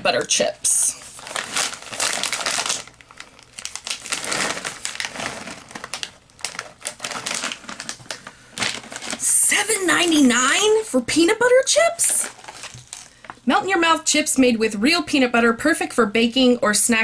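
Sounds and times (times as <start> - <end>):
plastic snack bag crinkling: 0.0 - 13.4.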